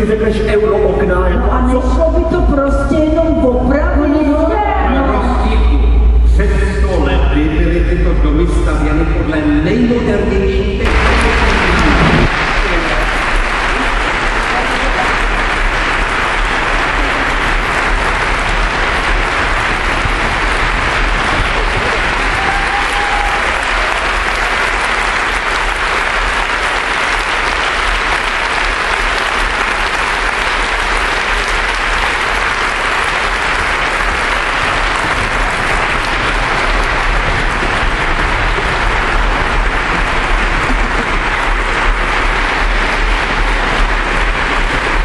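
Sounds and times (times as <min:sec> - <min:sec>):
audience applauding: 0:10.8 - 0:45.0.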